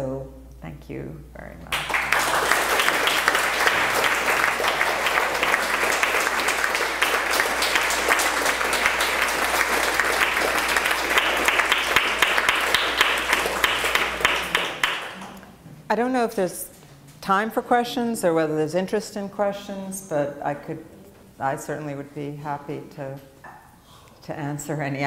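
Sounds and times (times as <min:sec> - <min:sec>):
audience applauding: 0:01.7 - 0:15.4.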